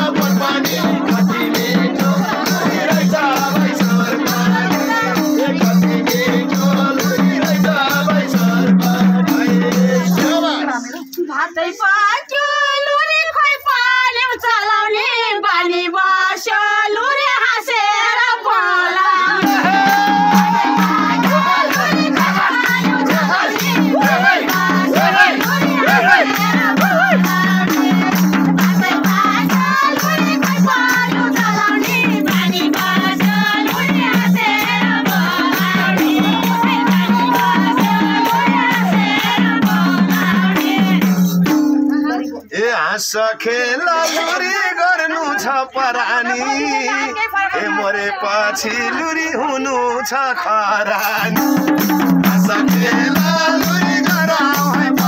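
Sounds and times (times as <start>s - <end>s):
hand drum beat: 0.0s - 10.6s, 19.3s - 42.4s, 51.2s - 55.0s
jingling tambourine: 0.0s - 11.2s, 19.3s - 42.6s, 51.0s - 55.0s
women singing folk song: 0.0s - 41.2s, 43.2s - 51.4s, 52.3s - 55.0s.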